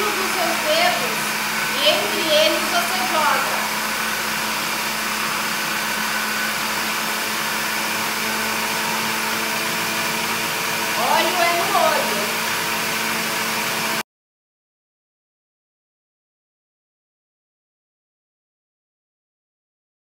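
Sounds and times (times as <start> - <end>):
blender motor whirring: 0.0 - 14.0.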